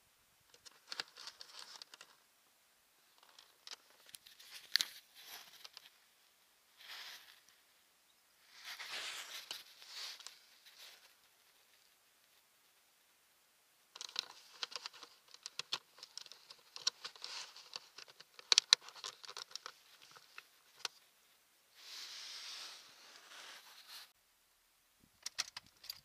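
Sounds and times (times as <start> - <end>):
wires rustling: 0.4 - 2.3, 3.0 - 7.7, 8.4 - 12.9, 13.9 - 24.2.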